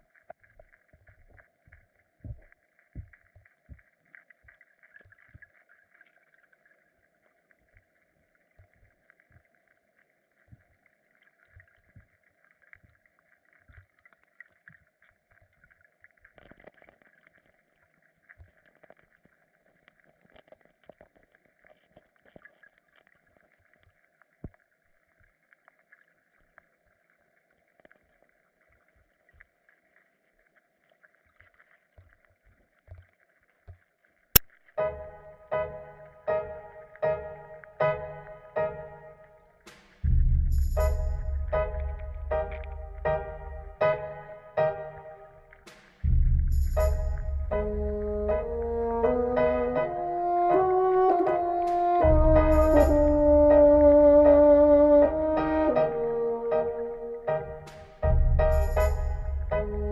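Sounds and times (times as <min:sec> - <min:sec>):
low underwater hiss: 0:34.8 - 0:59.9
low knocks: 0:40.0 - 0:45.0, 0:46.0 - 0:49.8, 0:51.7 - 0:54.1, 0:57.3 - 0:59.9.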